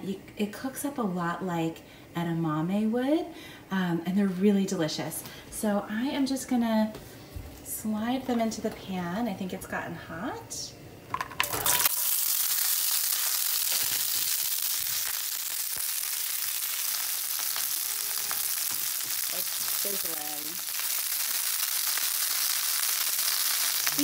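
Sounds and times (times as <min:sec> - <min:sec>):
beans sizzling in hot oil: 0:11.1 - 0:24.0.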